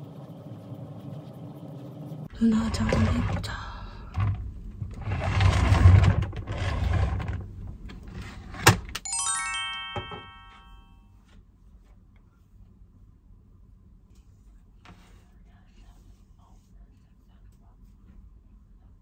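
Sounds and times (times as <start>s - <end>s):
descending bright chime notes: 9.0s - 11.0s.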